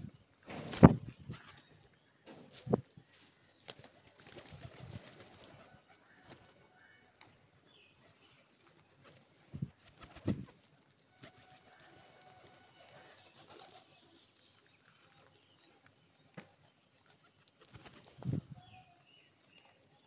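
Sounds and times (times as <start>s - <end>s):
wings flapping: 0.5s - 1.6s, 3.6s - 6.5s, 9.0s - 13.9s, 17.3s - 18.5s.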